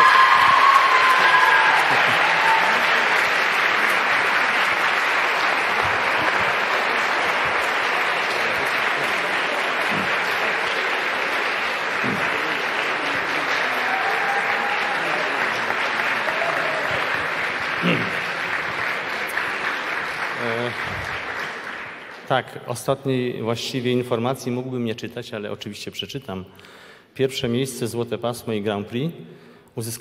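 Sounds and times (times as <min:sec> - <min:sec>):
audience applauding: 0:00.0 - 0:22.8.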